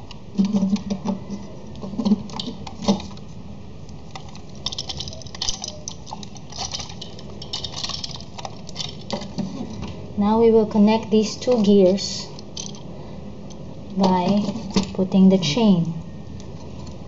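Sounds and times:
small plastic clicks and rattles: 4.1s - 9.9s.

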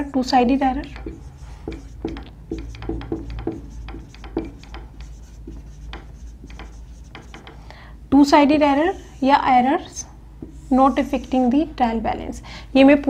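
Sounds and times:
marker writing on whiteboard: 0.0s - 7.7s, 8.4s - 11.6s.

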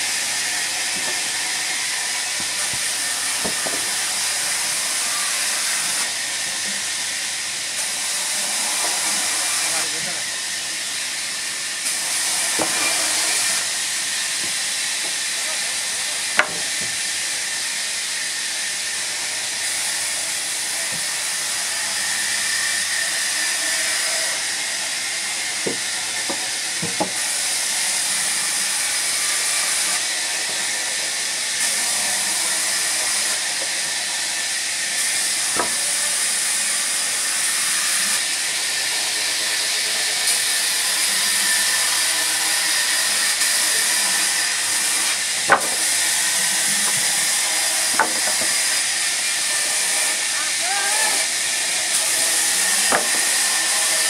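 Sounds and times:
wood knocking: 2.4s - 3.9s, 16.4s - 17.0s, 25.6s - 27.2s, 35.6s - 35.8s, 45.5s - 46.0s, 46.8s - 47.1s, 47.9s - 48.7s, 52.9s - 53.4s.

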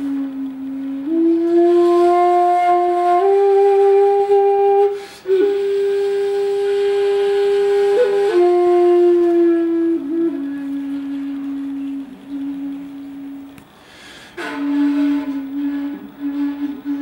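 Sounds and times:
bamboo flute long notes: 0.0s - 17.0s.

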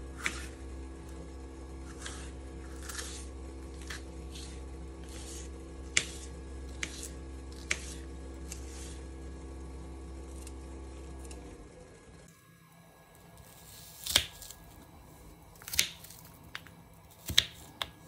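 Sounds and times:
knife cutting on wooden board: 0.2s - 0.6s, 1.8s - 9.1s.

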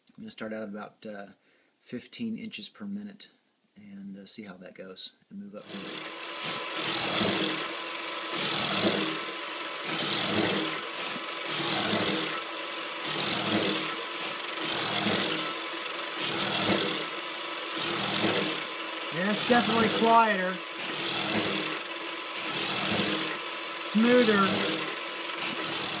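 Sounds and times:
end mill cutting metal: 5.6s - 26.0s
steady motor hum: 5.6s - 26.0s.

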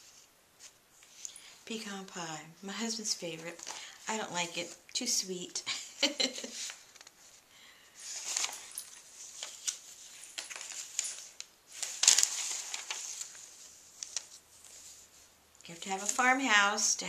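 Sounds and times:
paper pages rustling: 3.4s - 4.8s, 6.3s - 7.4s, 8.0s - 16.9s.

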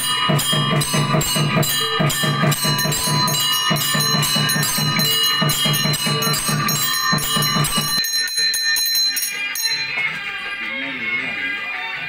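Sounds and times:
quick drum beat: 0.0s - 8.1s
brass hand bell ringing: 0.0s - 10.2s.

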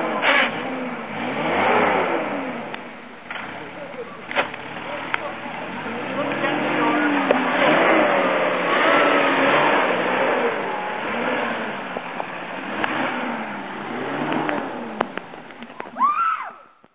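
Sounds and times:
truck engine revving: 0.0s - 16.0s
tyre and mud noise: 0.0s - 16.4s.

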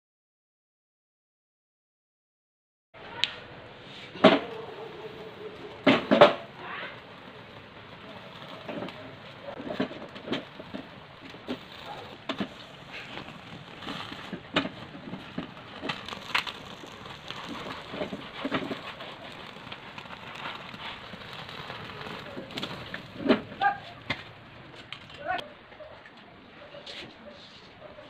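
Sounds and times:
gas flame hissing: 3.8s - 25.0s
skin crackling and popping: 4.2s - 25.4s.

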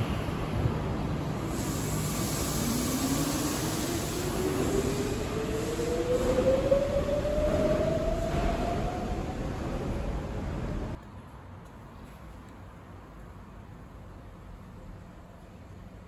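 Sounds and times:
monorail drive whine rising: 0.0s - 11.0s
low train rumble: 0.0s - 16.0s.

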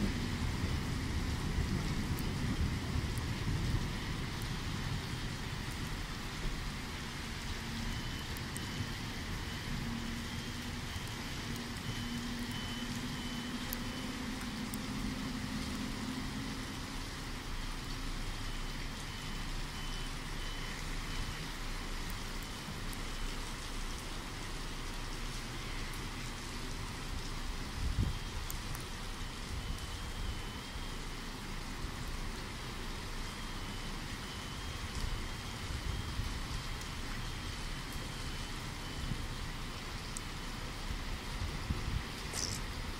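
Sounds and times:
heavy rain: 0.0s - 42.9s
faint high beep: 11.8s - 14.3s, 18.4s - 21.5s, 33.3s - 35.3s.

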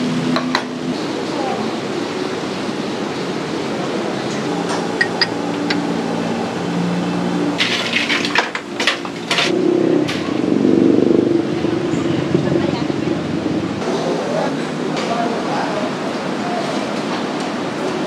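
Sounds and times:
metal and crockery clinking: 4.5s - 6.0s, 7.6s - 9.5s.

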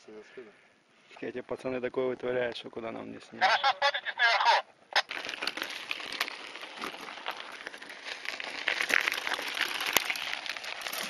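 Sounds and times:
bike tyres crunching on gravel: 4.9s - 11.0s.

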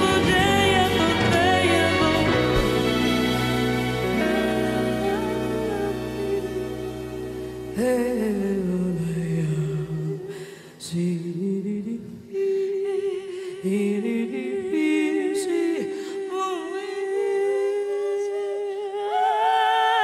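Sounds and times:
two women singing wordlessly: 0.0s - 3.0s, 10.9s - 20.0s.

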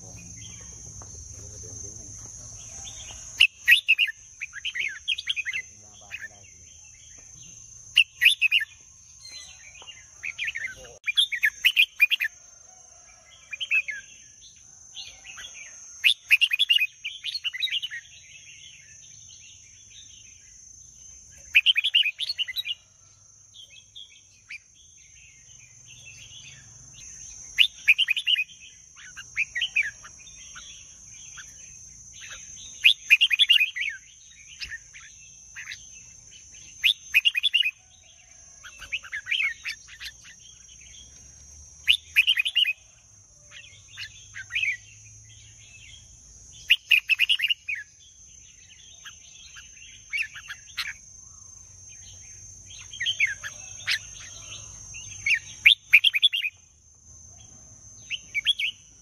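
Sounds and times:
bird singing: 0.0s - 59.0s.

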